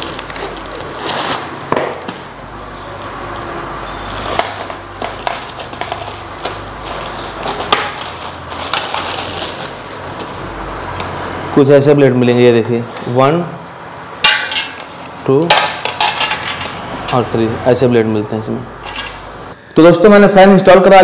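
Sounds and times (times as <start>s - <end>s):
plastic bag crinkling: 0.0s - 3.2s, 3.9s - 10.1s.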